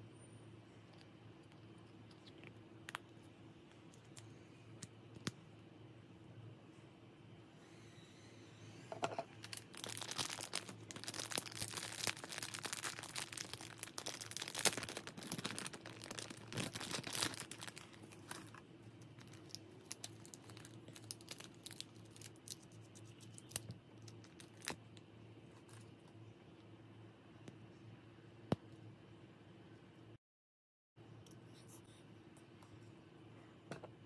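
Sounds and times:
plastic bag crinkling: 9.4s - 24.8s.

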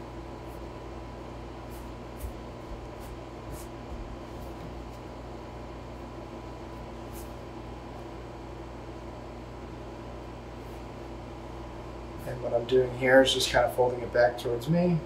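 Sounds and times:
steady background hum: 0.0s - 15.0s
dough brushing sounds: 1.6s - 5.2s, 6.8s - 8.0s.

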